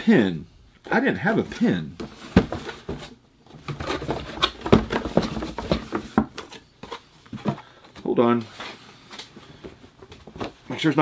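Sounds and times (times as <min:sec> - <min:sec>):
packaging rustling and knocking: 0:02.0 - 0:07.8.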